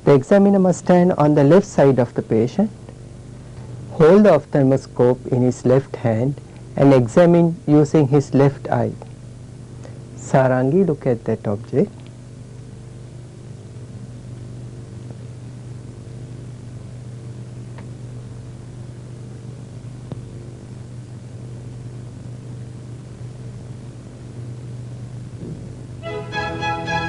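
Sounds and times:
low electrical hum: 0.0 - 27.0
background hiss: 25.5 - 27.0.

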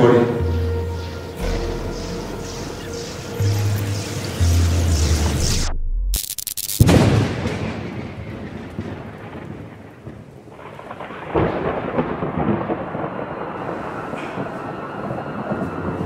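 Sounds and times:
thunder rolling: 6.8 - 16.0
steady rain: 7.7 - 16.0.

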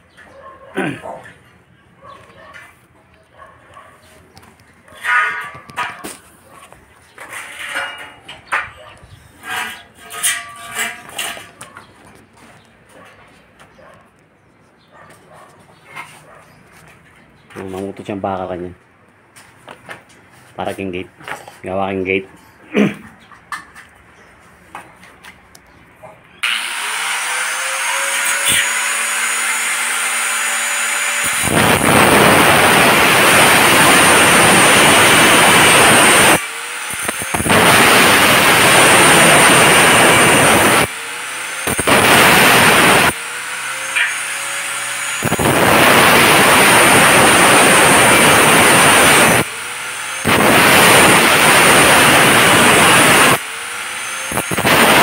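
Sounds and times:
angle grinder cutting metal tubing: 9.4 - 11.6, 26.4 - 55.0.

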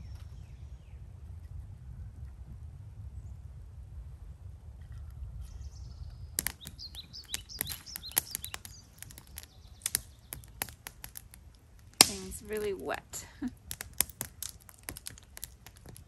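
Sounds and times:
low wind rumble: 0.0 - 16.0
songbird chirping: 5.6 - 13.5
campfire crackling: 6.4 - 16.0
sharp pops from burning wood: 6.4 - 16.0.

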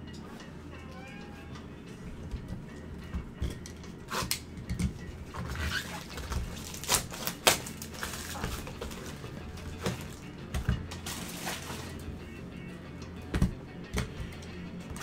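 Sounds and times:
cardboard and plastic rustling: 5.2 - 12.0.

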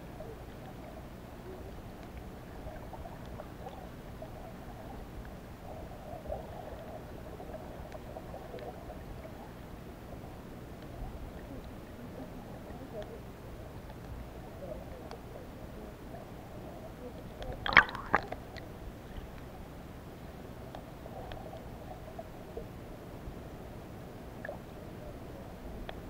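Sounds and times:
underwater rumble of moving water: 0.0 - 26.0
faint clicks: 0.3 - 2.3, 2.9 - 5.4, 7.8 - 9.4, 10.7 - 15.3, 20.6 - 21.7, 25.8 - 26.0.

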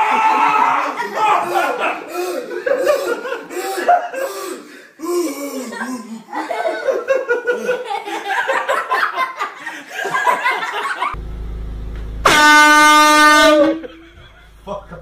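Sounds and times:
people giggling: 0.5 - 4.3, 5.3 - 11.2, 13.6 - 15.0
air horn blast: 12.0 - 14.1.

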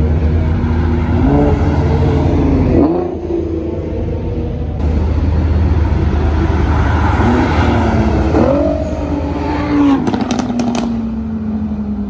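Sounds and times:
car accelerating hard: 1.0 - 3.9, 6.4 - 11.1
exhaust pops and crackles: 10.0 - 11.0.

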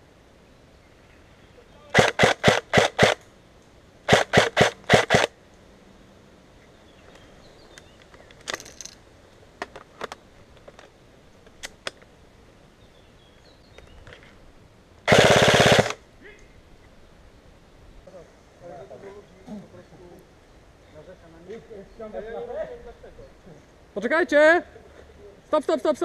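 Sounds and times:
airsoft rifle shots: 1.9 - 3.2, 4.1 - 5.3, 15.1 - 16.0.

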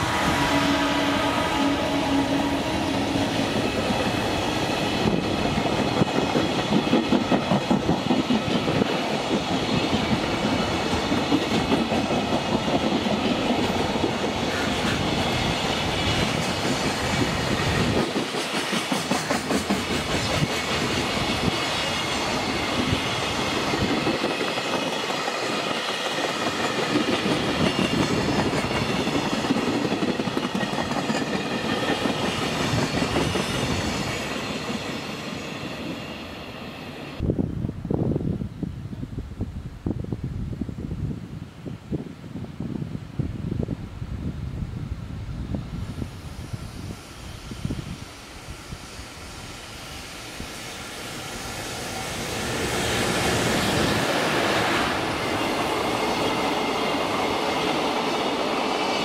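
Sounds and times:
freight train wheels clattering: 3.3 - 36.0.

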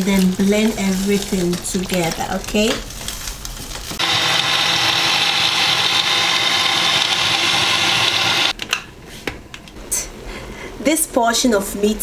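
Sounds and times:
blender running at high speed: 4.0 - 8.5.

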